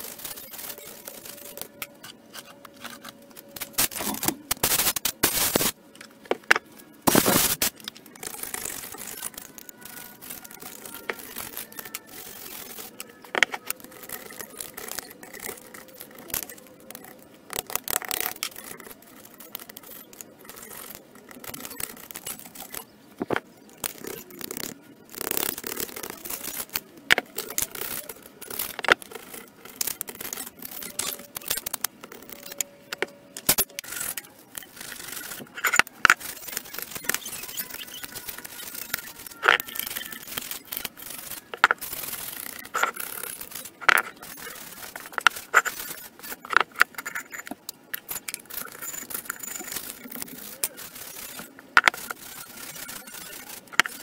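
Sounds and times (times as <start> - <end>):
metal tools scraping rust: 28.6 - 54.0.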